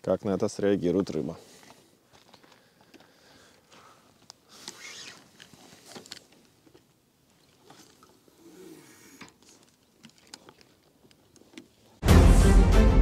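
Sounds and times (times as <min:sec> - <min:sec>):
fishing tackle clicks and rustles: 0:04.2 - 0:08.4, 0:09.2 - 0:11.9.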